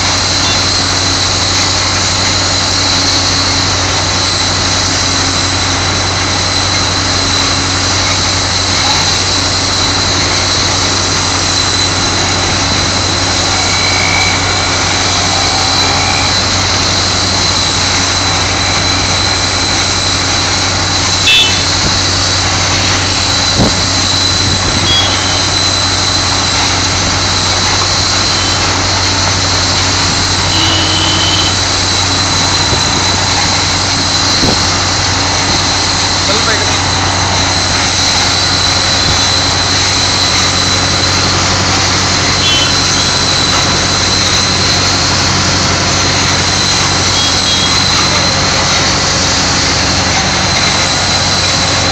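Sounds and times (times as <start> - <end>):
engine and blower humming: 0.0 - 51.9
thin high whine: 0.0 - 51.9
air hissing: 8.5 - 36.3.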